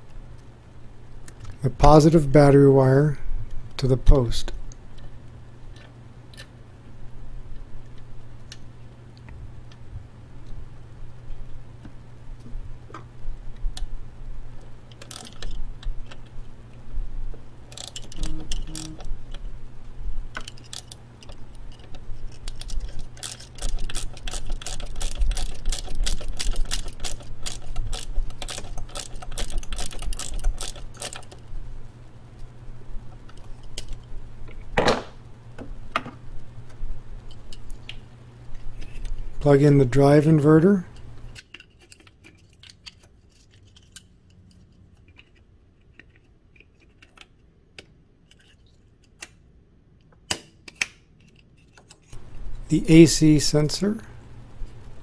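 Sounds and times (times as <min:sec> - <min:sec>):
hand ratchet clicking: 0:17.7 - 0:19.1, 0:20.4 - 0:31.4.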